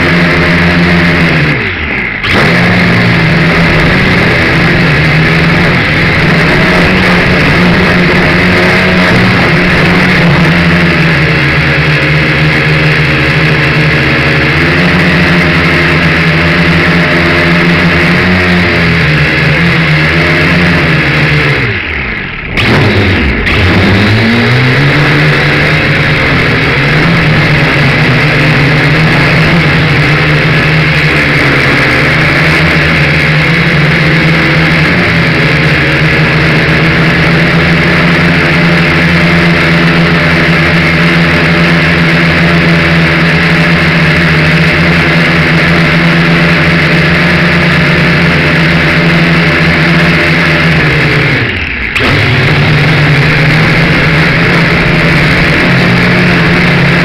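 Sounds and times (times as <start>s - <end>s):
drone motors and propellers whining: 0.0s - 57.0s.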